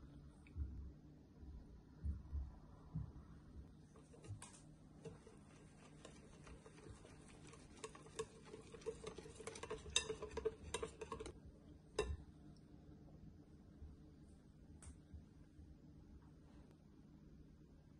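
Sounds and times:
whisk ticking against glass bowl: 4.0s - 11.4s.

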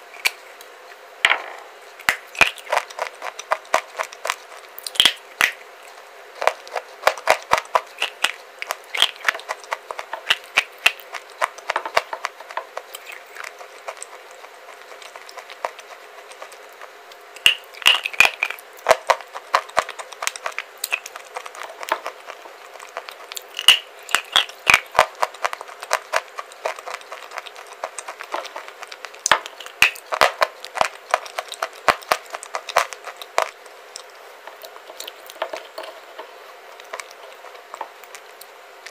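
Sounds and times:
crunching of baked clay chewed: 0.0s - 1.0s, 2.0s - 38.9s.

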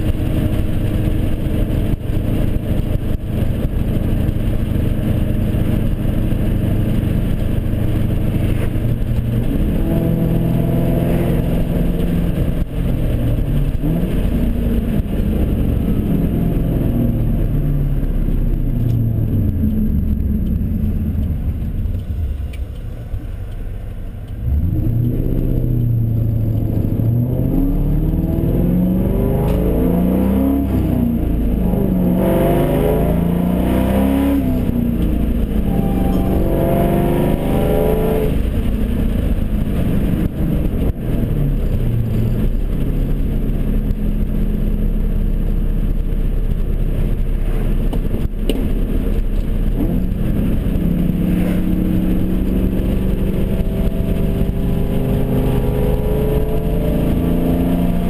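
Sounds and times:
car engine accelerating: 0.0s - 58.0s.

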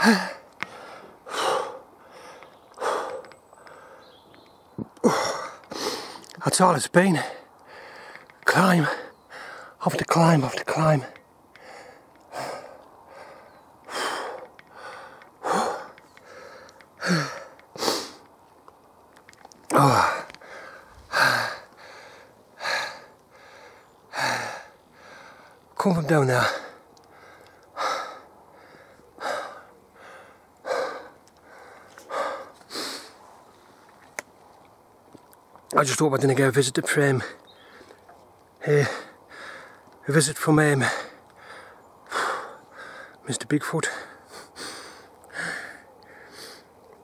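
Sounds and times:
man groaning: 0.0s - 0.4s, 19.7s - 20.3s
man breathing hard: 0.0s - 4.2s, 5.0s - 6.4s, 7.2s - 9.8s, 11.5s - 18.3s, 19.7s - 25.7s, 26.4s - 33.8s, 37.2s - 40.0s, 40.7s - 43.3s, 43.9s - 46.8s.

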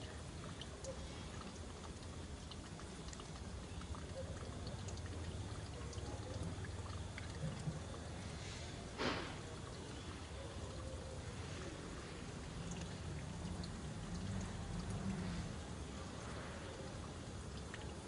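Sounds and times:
faint hiss: 7.5s - 18.0s.

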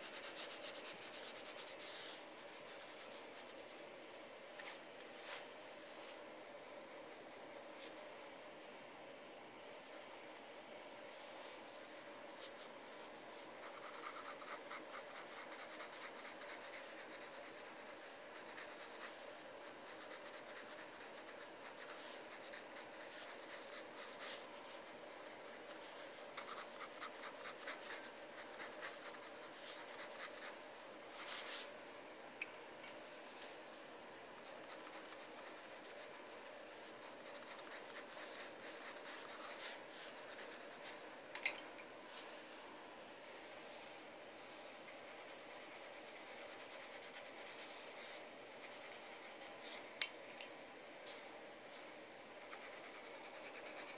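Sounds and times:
pencil scratching on paper: 0.0s - 3.8s, 13.6s - 31.7s, 34.4s - 41.0s, 52.4s - 53.9s.

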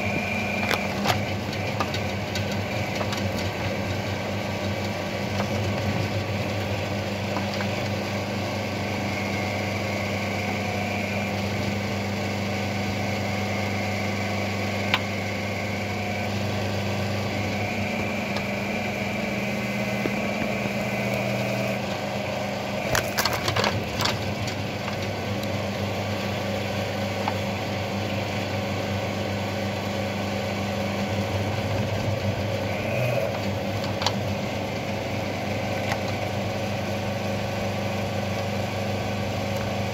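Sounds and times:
hydraulic drive humming: 0.0s - 7.8s, 14.6s - 28.6s, 30.1s - 38.1s
roots cracking: 22.8s - 25.6s.

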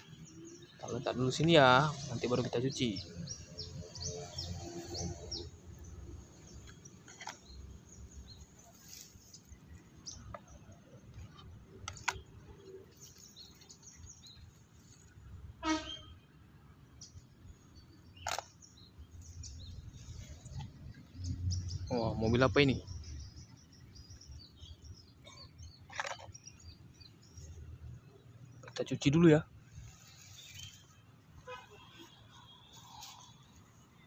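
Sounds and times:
birds chirping: 0.0s - 34.0s
rustling: 6.4s - 9.9s, 29.6s - 33.8s.

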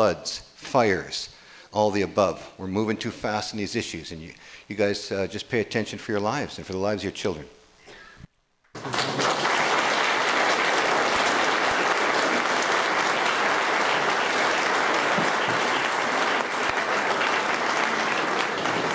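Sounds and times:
audience applauding: 8.8s - 18.9s.

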